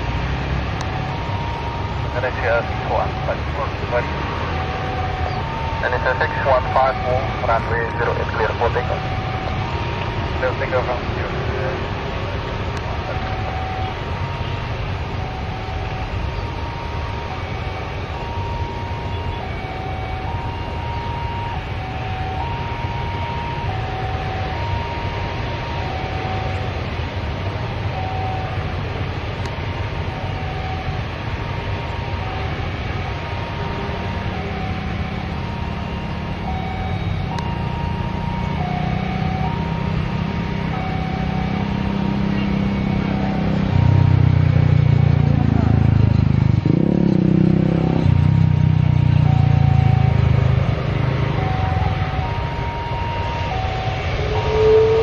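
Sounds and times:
jet engines idling: 0.8s - 24.9s.

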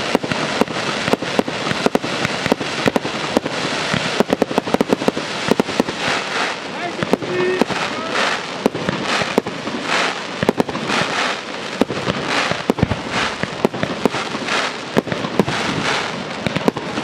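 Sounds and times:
firework bangs: 0.0s - 17.0s
firework crackling: 0.0s - 17.0s.

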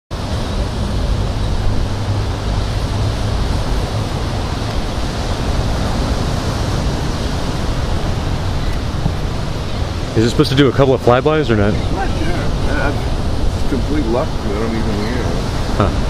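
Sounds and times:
ocean surf: 0.1s - 16.0s
wind rumbling on microphone: 0.1s - 16.0s.

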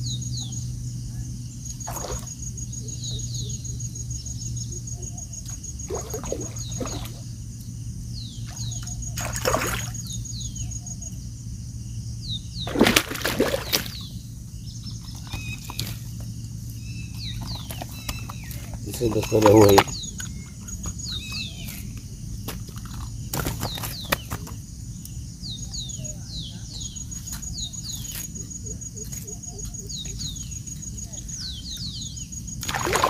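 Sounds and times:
fish thrashing and splashing: 5.9s - 7.2s, 9.2s - 10.0s, 12.7s - 14.0s, 18.6s - 20.0s, 32.6s - 33.0s.

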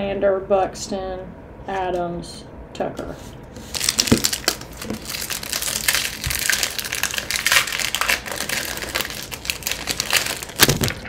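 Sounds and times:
plastic wrapper crinkling: 3.6s - 11.0s.

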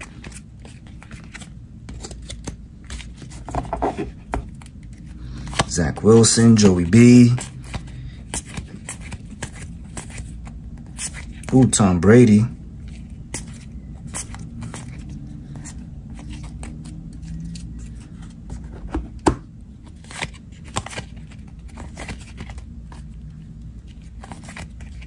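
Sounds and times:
low steady hum: 0.0s - 25.0s
trading cards snapping and sliding: 20.0s - 22.6s.

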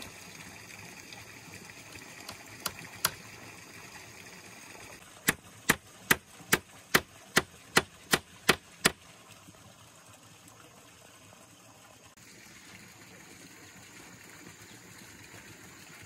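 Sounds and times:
hand tool striking: 5.3s - 9.0s.

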